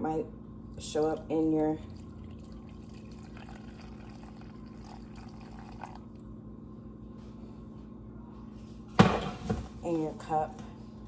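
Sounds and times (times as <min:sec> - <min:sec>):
low steady hum: 0:00.0 - 0:11.0
tea pouring into a mug: 0:01.0 - 0:06.3.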